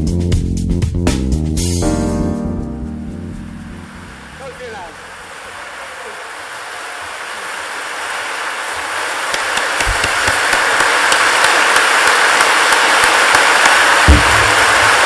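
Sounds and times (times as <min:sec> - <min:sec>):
large audience applauding: 0:04.1 - 0:15.0.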